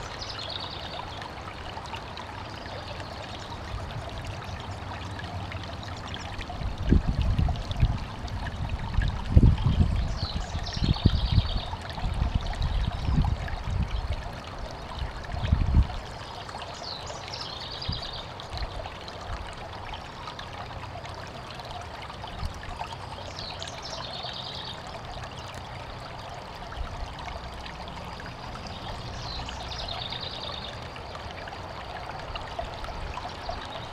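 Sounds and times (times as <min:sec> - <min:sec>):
stream trickling over rocks: 0:00.0 - 0:33.9.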